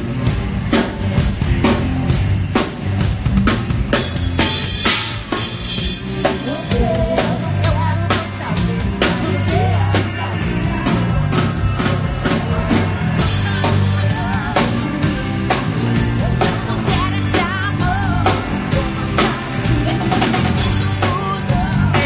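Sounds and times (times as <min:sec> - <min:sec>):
bass guitar: 0:00.0 - 0:22.0
drum kit beat: 0:00.0 - 0:22.0
person singing: 0:05.3 - 0:22.0.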